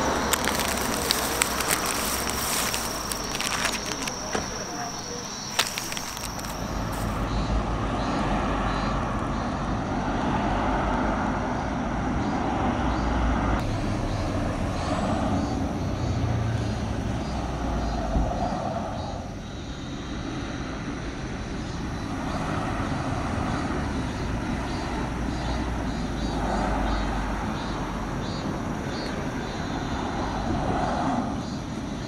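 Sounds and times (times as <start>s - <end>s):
plastic bag crinkling: 0.0s - 7.2s
low traffic rumble: 0.0s - 32.0s.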